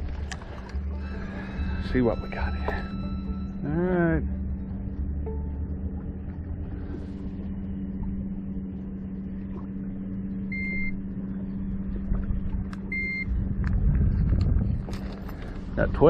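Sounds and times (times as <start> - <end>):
motor hum with low rumble: 0.0 - 16.0
short electronic beeps: 10.5 - 11.0, 12.9 - 13.3.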